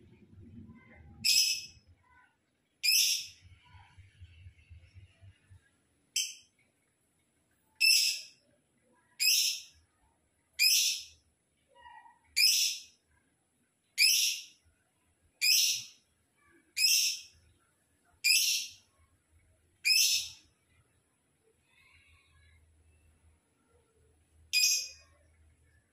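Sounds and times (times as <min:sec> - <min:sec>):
lovebird shrill calls: 0:02.8 - 0:03.4, 0:09.2 - 0:09.7, 0:10.6 - 0:11.1, 0:12.4 - 0:12.8, 0:14.0 - 0:14.5, 0:15.4 - 0:15.9, 0:16.8 - 0:17.3, 0:18.3 - 0:18.7, 0:19.8 - 0:20.4.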